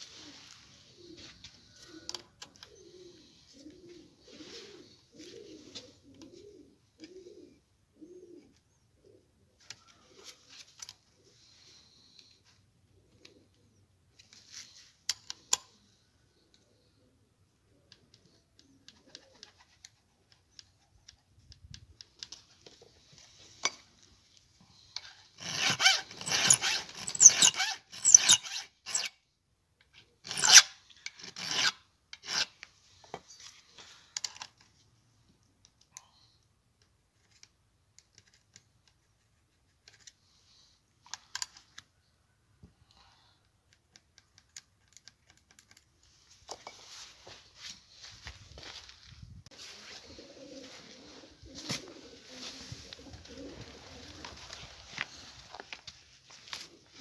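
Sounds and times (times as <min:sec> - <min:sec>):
faint scrapes and clicks: 0:17.9 - 0:29.1, 0:35.6 - 0:42.0
file rasping on saw chain: 0:25.4 - 0:29.1, 0:30.3 - 0:30.7.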